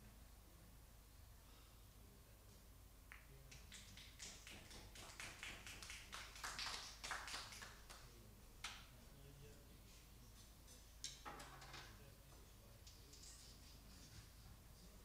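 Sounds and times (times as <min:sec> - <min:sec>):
faint scattered clapping: 0:03.1 - 0:09.0.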